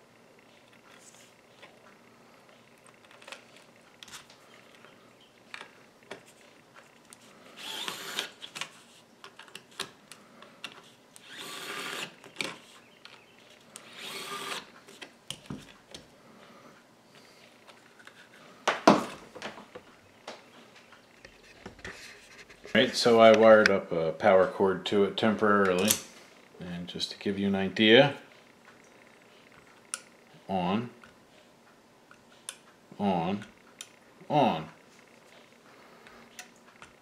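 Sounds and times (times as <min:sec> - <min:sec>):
electric screwdriver whirring: 0:07.6 - 0:08.5, 0:11.2 - 0:12.2, 0:13.8 - 0:14.7.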